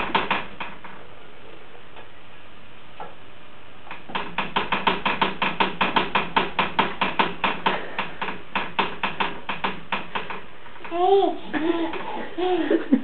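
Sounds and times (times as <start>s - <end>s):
rapid wooden knocking: 0.0s - 0.8s, 4.1s - 10.5s.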